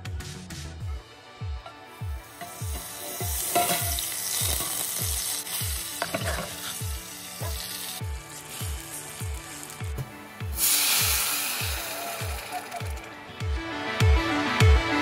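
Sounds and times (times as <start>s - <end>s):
background music with bass beat: 0.0s - 15.0s
butter sizzling in a pot: 1.8s - 13.1s.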